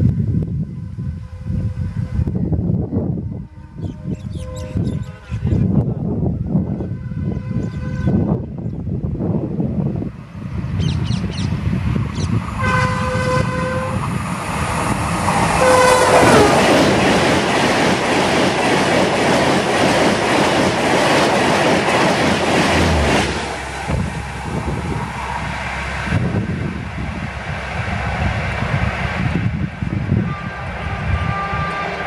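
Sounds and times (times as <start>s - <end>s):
train horn blasts: 0.6s - 5.4s, 6.4s - 8.5s, 12.6s - 14.2s, 15.5s - 16.7s, 30.1s - 32.0s
train coaches rushing past: 11.5s - 32.0s.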